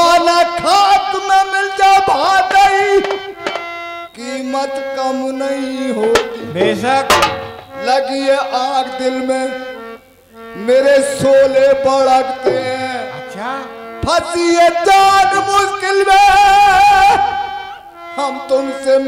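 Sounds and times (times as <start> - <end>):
man singing: 0.0 - 3.5, 4.1 - 9.8, 10.5 - 19.0
held instrument notes: 0.0 - 18.4
sharp drum hits: 2.8 - 3.7, 6.0 - 7.8, 12.4 - 13.0.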